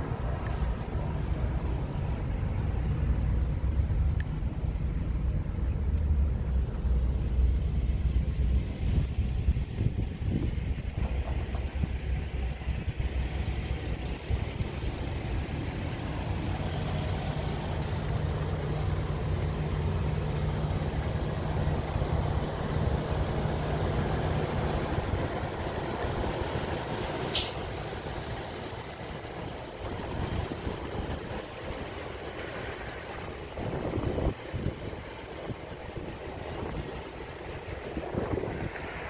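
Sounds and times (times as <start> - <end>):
vehicle engine rumble: 0.0 - 39.0
short sharp hiss: 27.3 - 27.7.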